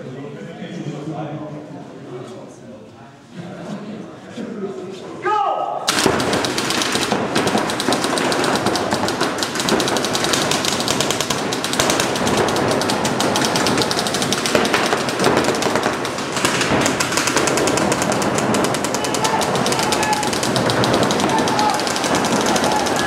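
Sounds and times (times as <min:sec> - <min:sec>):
paintball markers firing rapidly: 0:05.9 - 0:23.0.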